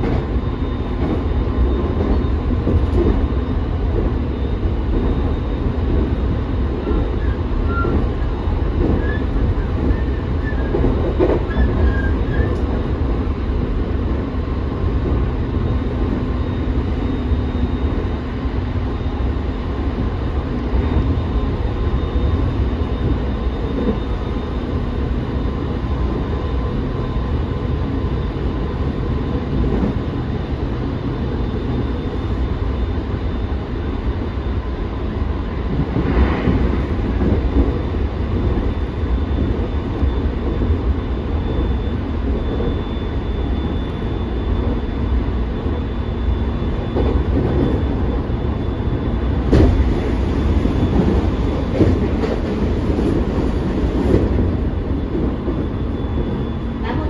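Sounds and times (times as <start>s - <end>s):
train wheels rumbling on rail: 0.0s - 57.0s
rail clicks: 6.8s - 13.2s, 49.2s - 57.0s.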